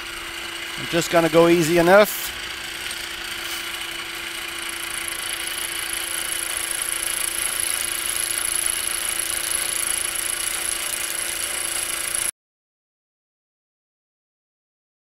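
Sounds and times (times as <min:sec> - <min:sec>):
milling machine cutting metal: 0:00.0 - 0:12.3.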